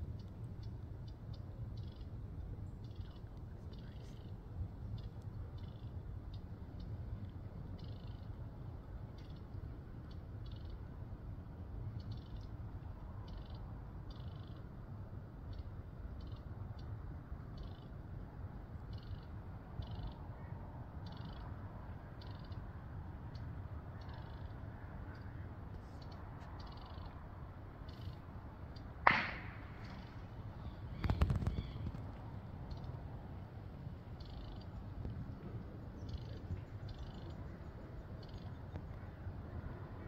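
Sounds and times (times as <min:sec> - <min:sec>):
sharp loud click: 0:29.0 - 0:30.1.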